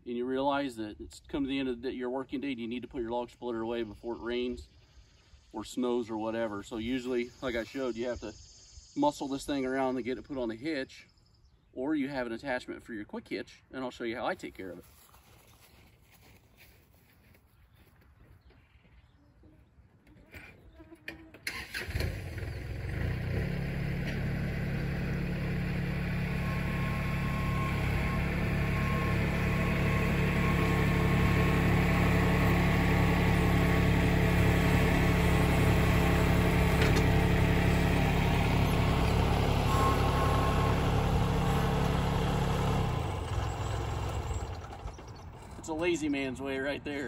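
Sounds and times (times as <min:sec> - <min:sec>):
diesel tractor engine running: 0:21.4 - 0:46.3.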